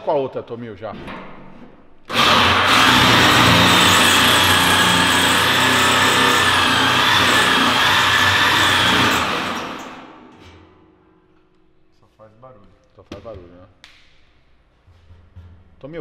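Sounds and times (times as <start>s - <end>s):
electric drill whining: 2.1s - 10.3s.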